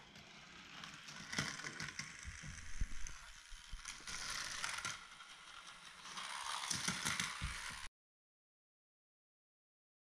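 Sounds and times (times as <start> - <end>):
toy car whirring and rattling: 0.0 - 7.9.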